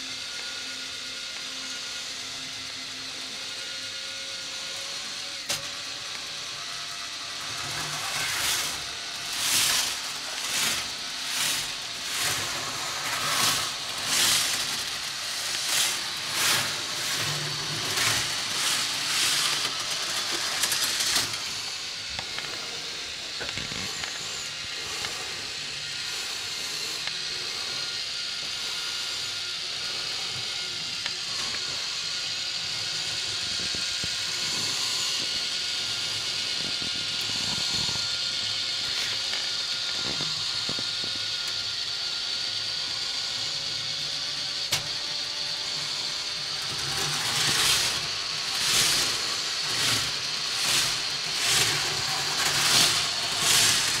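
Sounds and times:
model train whirring on track: 0.0 - 54.0.

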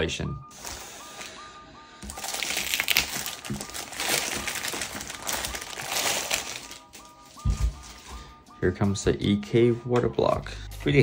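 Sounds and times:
plastic bag crinkling: 2.0 - 8.2.

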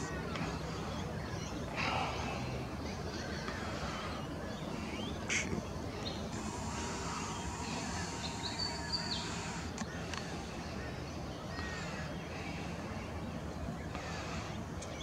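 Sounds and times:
faint bird chirps: 0.0 - 15.0
steady low background noise: 0.0 - 15.0.

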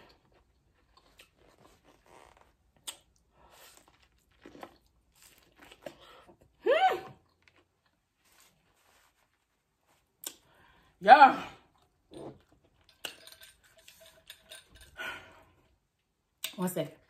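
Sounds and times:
chewing and crunching corn: 0.0 - 8.7.

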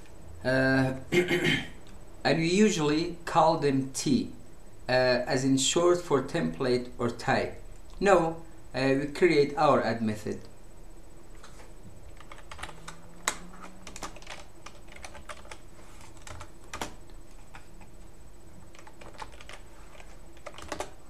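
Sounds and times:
typing on computer keyboard: 12.1 - 17.9, 18.7 - 21.0.

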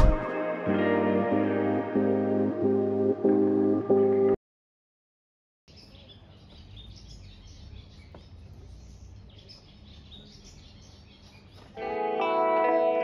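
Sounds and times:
small birds chirping: 5.7 - 12.3.

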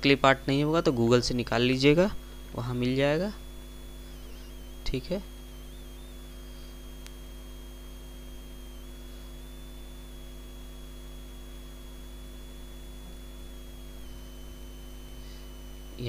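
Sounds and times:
electrical mains hum: 0.0 - 16.0
click: 7.0 - 7.2.

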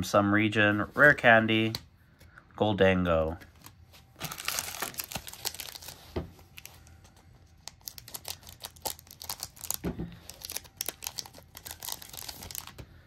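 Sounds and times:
foil pack crinkling: 3.5 - 12.8.

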